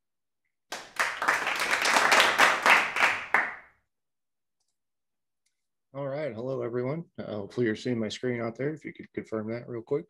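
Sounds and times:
hands clapping: 0.7s - 3.7s.

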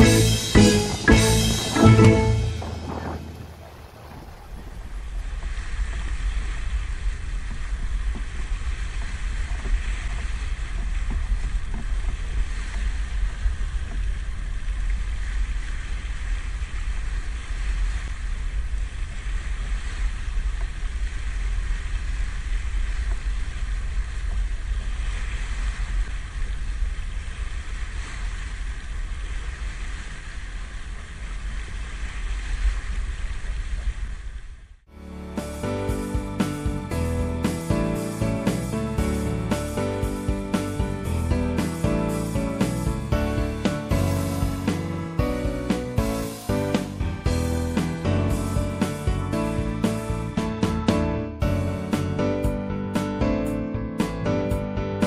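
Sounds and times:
heavy low rumble: 0.0s - 25.1s, 34.0s - 55.0s
boat rushing over water: 0.0s - 55.0s
wind buffeting microphone: 0.8s - 34.7s.

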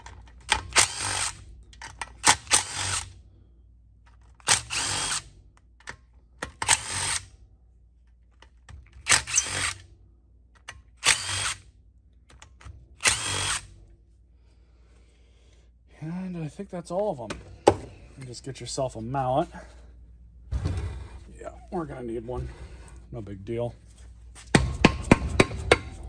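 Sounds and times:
cordless driver spinning out bolts: 0.4s - 3.1s, 4.4s - 5.2s, 6.5s - 7.3s, 9.0s - 9.8s, 11.0s - 11.6s, 13.0s - 13.7s.

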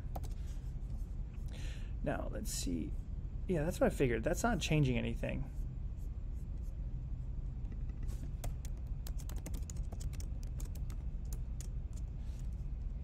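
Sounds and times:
keyboard typing clicks: 8.4s - 12.1s.

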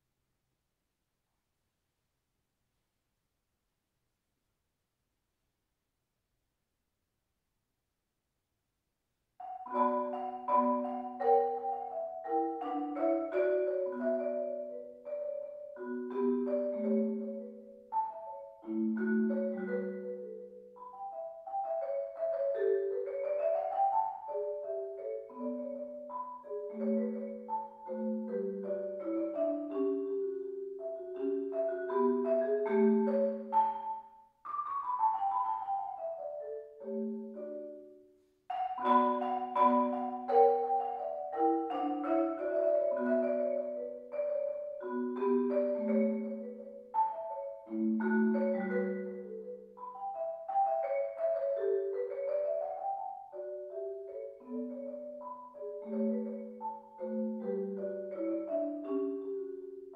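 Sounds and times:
marimba played with mallets: 9.4s - 59.9s.

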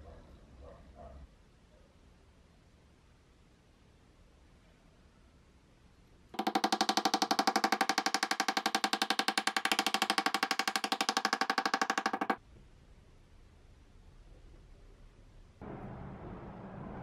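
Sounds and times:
small hammer tapping on metal: 6.4s - 12.4s.

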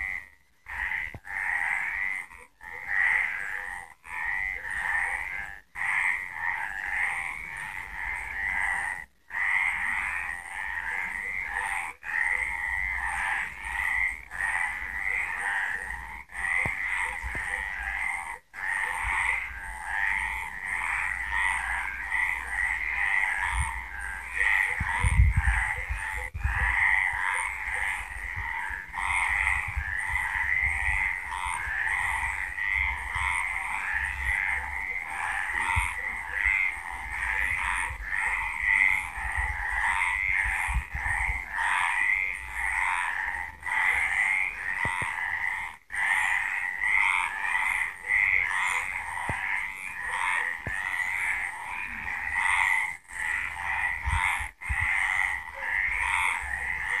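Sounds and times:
frogs croaking: 0.0s - 57.0s.

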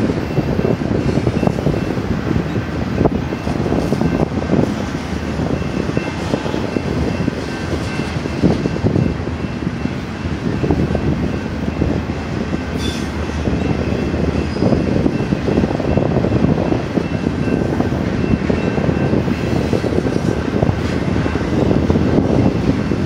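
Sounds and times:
train wheels rumbling on rails: 0.0s - 23.0s
high ringing from wheels: 5.3s - 21.9s.

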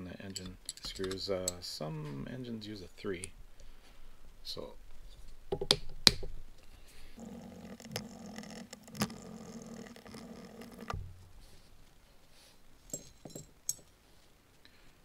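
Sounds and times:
small metal parts clicking: 0.3s - 1.6s.

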